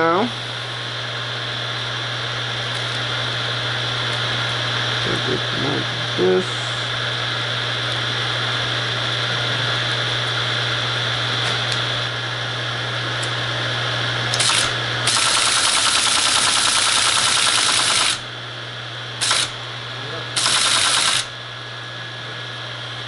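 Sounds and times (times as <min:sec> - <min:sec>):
teletype motor humming: 0:14.3 - 0:18.4, 0:19.1 - 0:21.5.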